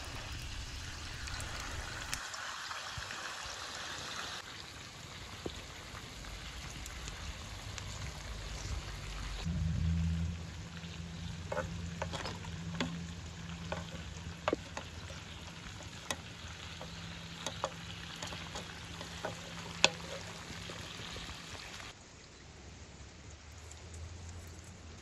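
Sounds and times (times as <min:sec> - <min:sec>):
food sizzling in a metal pan: 0:10.7 - 0:21.9
wooden spoon knocking against pan: 0:13.6 - 0:16.2.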